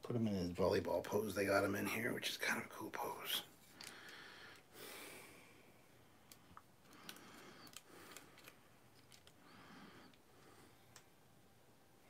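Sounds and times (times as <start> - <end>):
plastic parts clicking: 6.3 - 9.4.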